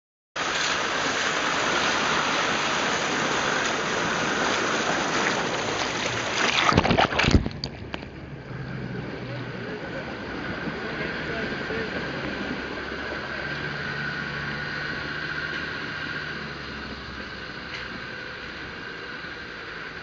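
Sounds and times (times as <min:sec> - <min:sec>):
loud water splashes: 0:00.4 - 0:09.0
water rushing around wheel: 0:00.4 - 0:20.0.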